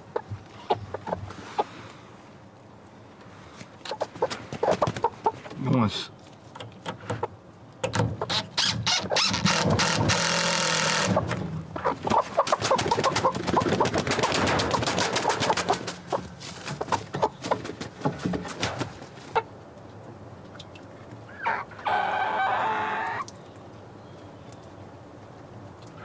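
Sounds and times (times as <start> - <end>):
hens clucking: 0.0 - 1.8, 3.8 - 6.0, 11.0 - 19.5, 21.3 - 23.3.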